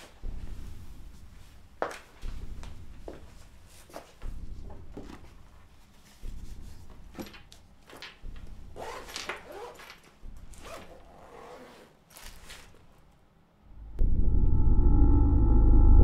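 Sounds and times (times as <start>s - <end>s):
papers and bag rustling: 7.1s - 13.2s.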